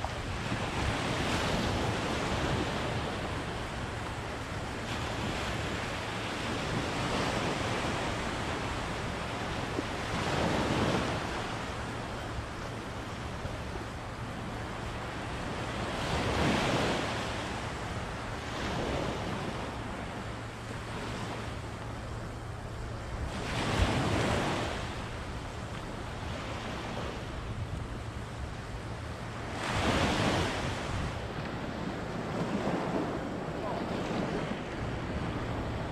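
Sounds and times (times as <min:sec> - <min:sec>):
wind on microphone: 0:22.9 - 0:35.9
surf breaking on beach: 0:29.4 - 0:35.9.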